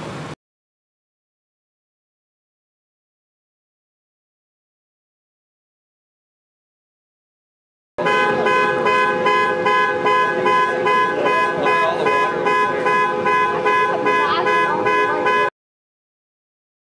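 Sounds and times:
car horn pulsing: 8.0 - 15.5.

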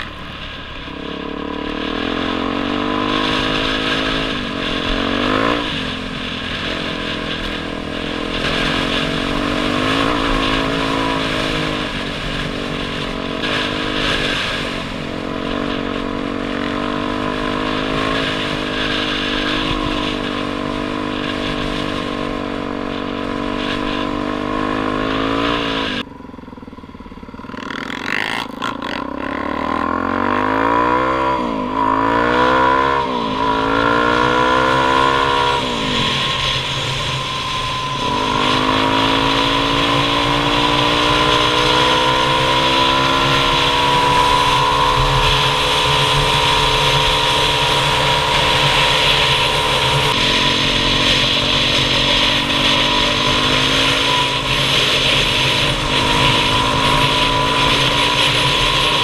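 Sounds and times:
dirt bike engine shifting gears: 0.0 - 59.0
heavy wind noise: 30.2 - 59.0.

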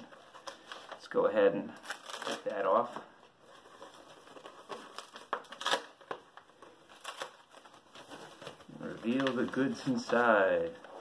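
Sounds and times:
bubble wrap crinkling: 0.0 - 11.0
tape being peeled off: 1.8 - 2.9, 3.6 - 9.9.

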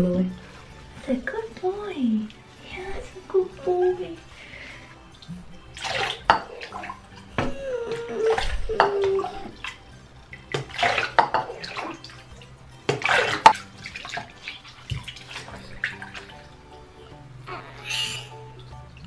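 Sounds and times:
water splashing in a sink: 2.3 - 16.9.

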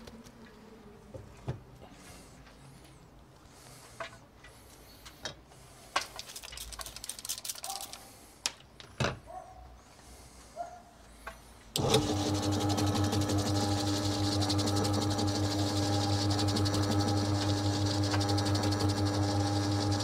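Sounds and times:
electric motor humming: 11.8 - 20.0.

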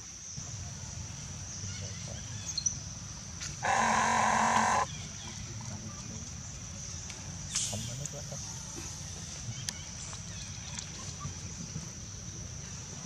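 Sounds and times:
animal call: 3.6 - 4.9.

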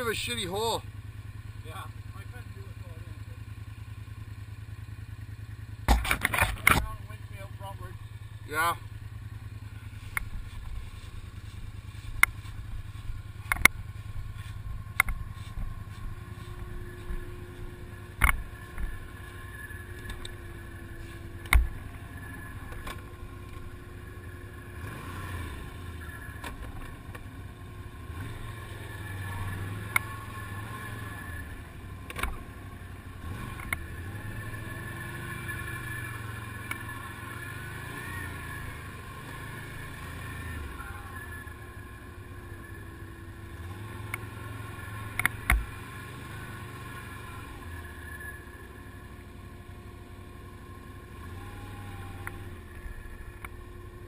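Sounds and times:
quad bike engines running: 0.0 - 54.0.

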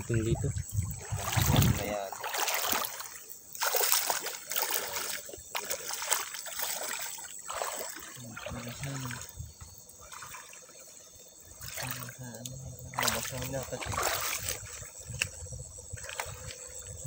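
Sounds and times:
hand stirring water: 0.0 - 9.3, 11.5 - 15.3
stream water splashing over rocks: 0.0 - 17.0.

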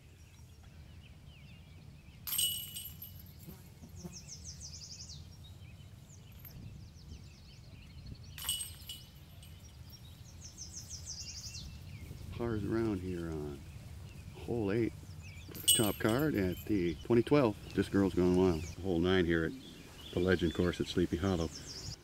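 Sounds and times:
disc striking metal chains: 2.3 - 3.6, 8.4 - 10.0, 15.5 - 17.0
songbird trilling: 3.2 - 22.0.

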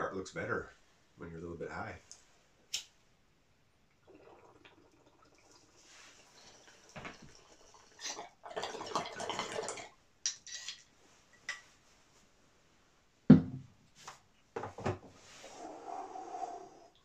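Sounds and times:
water bubbling in bong: 4.0 - 5.6
thump and knocks: 13.3 - 13.7.

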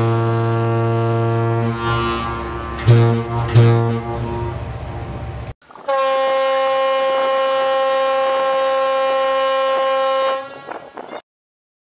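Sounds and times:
ship horn blast: 0.0 - 11.2.

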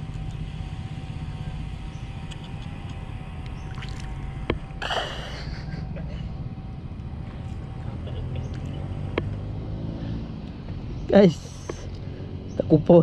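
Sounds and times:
faint hum: 0.0 - 13.0
low rumble: 0.0 - 13.0
water splashing: 3.6 - 4.2.

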